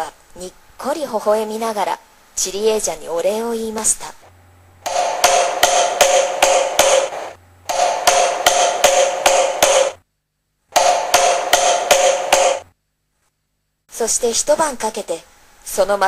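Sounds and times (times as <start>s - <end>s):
hammer striking wood: 4.9s - 10.0s, 10.7s - 12.7s.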